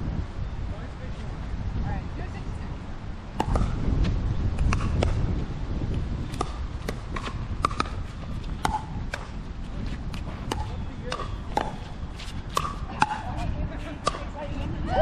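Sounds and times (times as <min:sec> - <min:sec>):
paddles hitting plastic ball: 0:06.3 - 0:09.3.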